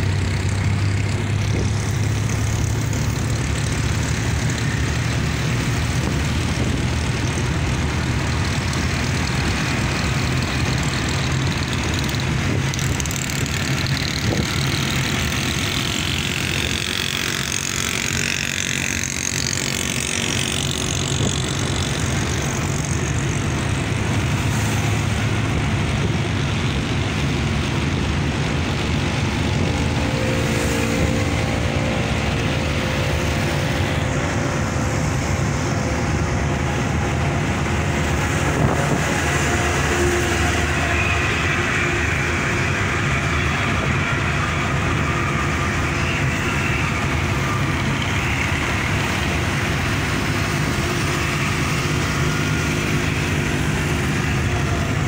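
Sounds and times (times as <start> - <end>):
road noise: 0.0 - 55.0
vehicle engine drone: 0.0 - 55.0.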